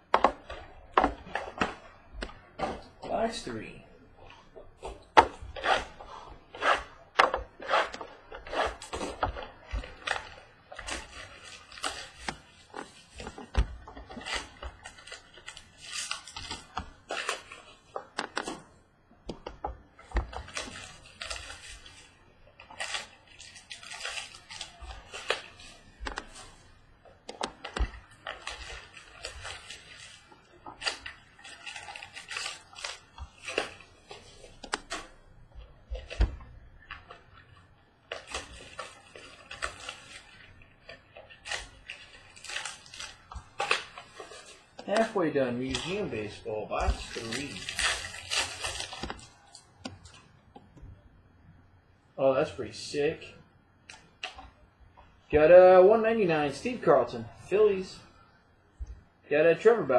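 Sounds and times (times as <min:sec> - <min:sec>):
foil packs crinkling: 0:04.3 - 0:18.8, 0:19.9 - 0:50.3.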